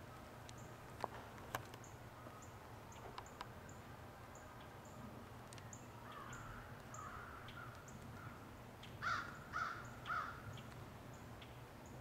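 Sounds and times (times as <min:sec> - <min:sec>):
crows cawing: 0:06.0 - 0:08.4, 0:09.0 - 0:10.6.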